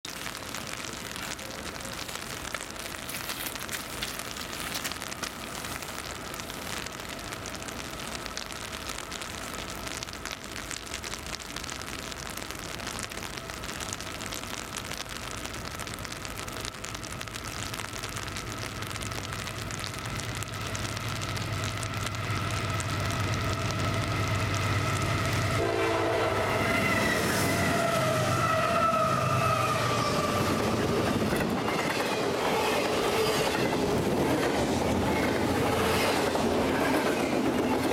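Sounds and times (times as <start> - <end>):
rain hissing: 0.0 - 37.9
diesel locomotives droning: 20.6 - 36.1.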